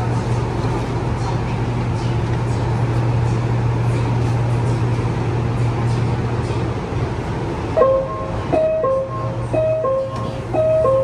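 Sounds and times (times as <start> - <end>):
metro carriage humming: 0.0 - 11.0.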